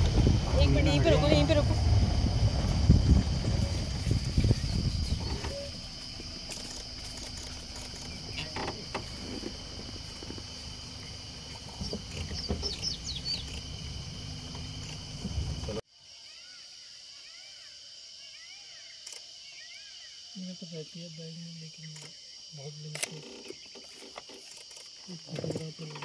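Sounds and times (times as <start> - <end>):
low rumble: 0.0 - 6.5
insect chorus drone: 0.0 - 26.0
bird chirps: 11.0 - 13.8.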